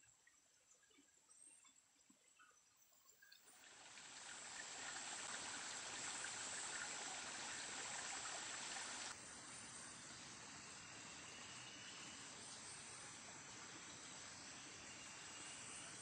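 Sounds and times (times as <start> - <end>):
forest ambience hiss: 3.4 - 16.0.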